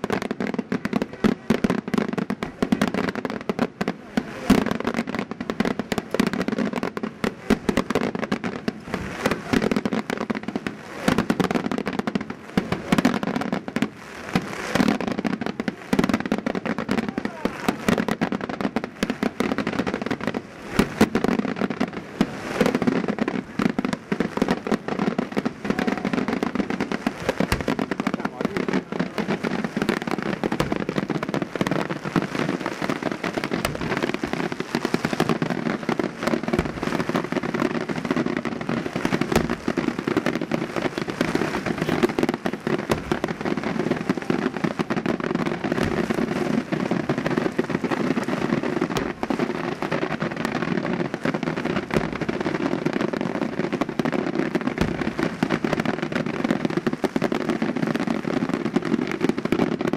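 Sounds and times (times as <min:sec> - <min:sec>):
fireworks crackling: 0:00.0 - 0:59.9
loud fireworks bangs: 0:00.0 - 0:59.9.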